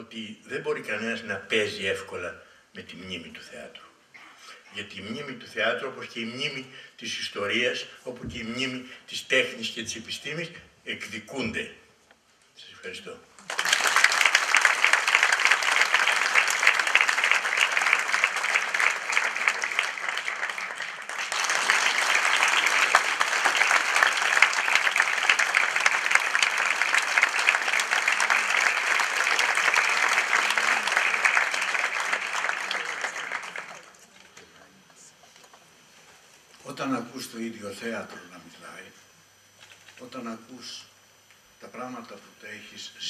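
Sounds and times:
audience applauding: 13.4 - 34.5.

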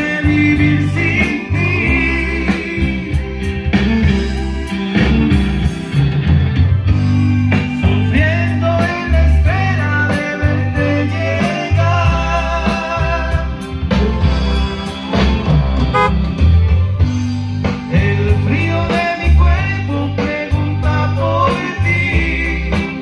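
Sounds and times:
pulsing bass line: 0.0 - 8.4, 10.8 - 19.6
band playing: 0.0 - 23.0
guitar: 0.0 - 23.0.

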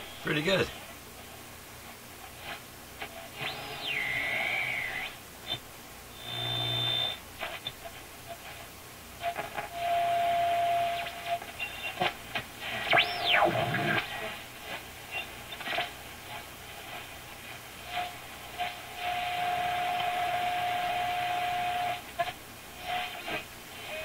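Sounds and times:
radio static crackle: 0.0 - 5.6, 11.0 - 24.0
radio whistle: 3.4 - 5.2, 9.2 - 12.0, 12.7 - 14.2, 17.9 - 22.0
sweeping radio whistle: 3.4 - 5.2, 9.3 - 12.0, 12.8 - 14.1, 17.9 - 22.0.

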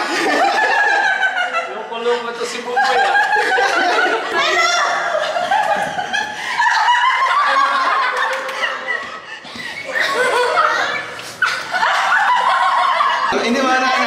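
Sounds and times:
group of people laughing: 0.0 - 14.0
people talking: 12.2 - 14.0.

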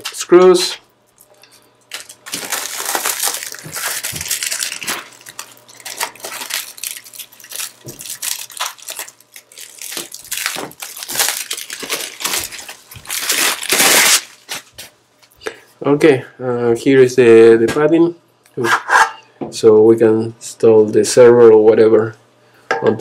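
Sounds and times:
plastic wrap crinkling: 1.9 - 15.0.

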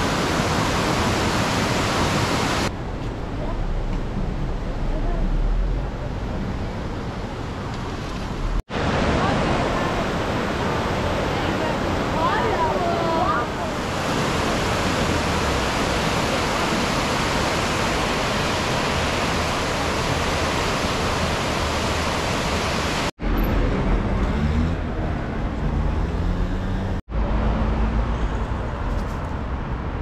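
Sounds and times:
river rushing over rapids: 0.0 - 2.7, 8.4 - 23.1
low street traffic: 0.0 - 30.0.

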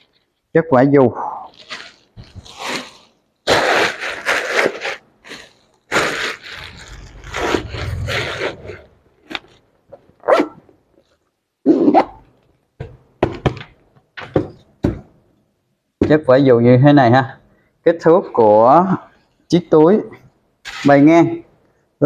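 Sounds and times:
bags rustling and scraping: 1.5 - 11.3
low rumble: 6.6 - 9.2.

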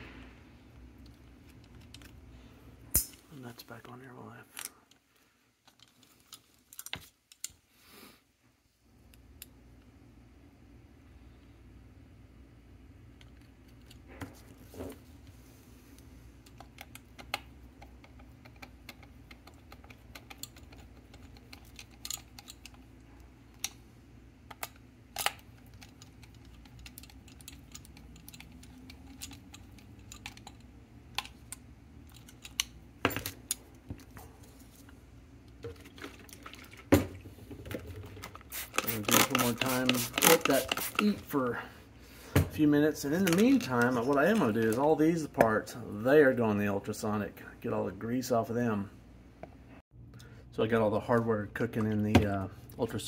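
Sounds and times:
small metal clicks and clinks: 24.5 - 33.7.

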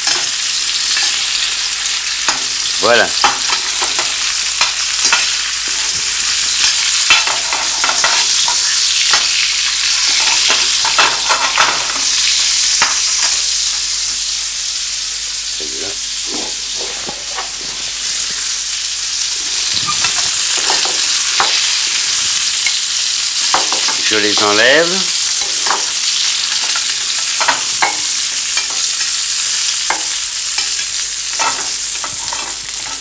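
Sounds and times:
kidney sizzling in frying pan: 0.0 - 33.0
fork clicking and scraping pan: 30.6 - 33.0.

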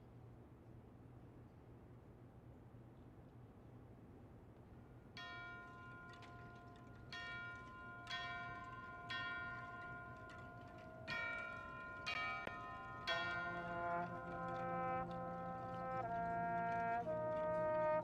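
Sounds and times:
bell-like mallet percussion notes: 5.2 - 18.0.

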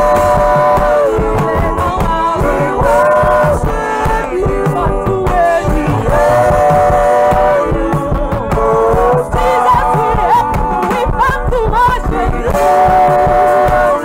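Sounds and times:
band playing steady beat: 0.0 - 14.0
singers singing gospel: 0.0 - 14.0.

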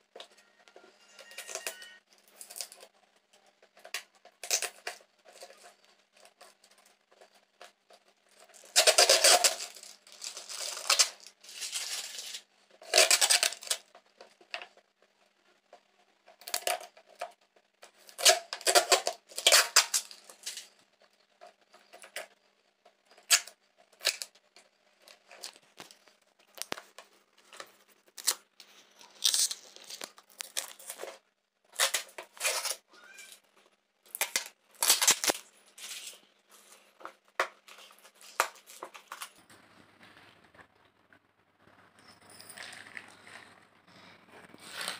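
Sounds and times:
plastic tearing and crinkling: 3.6 - 14.7, 16.3 - 21.0, 23.1 - 24.4, 25.0 - 33.4, 34.1 - 39.4.

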